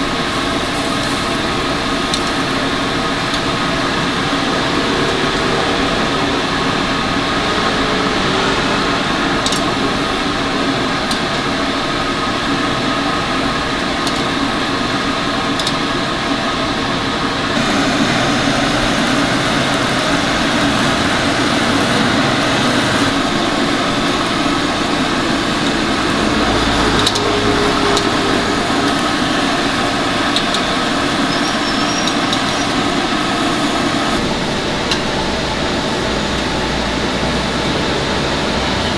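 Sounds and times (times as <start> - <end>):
mechanical whir: 0.0 - 38.9.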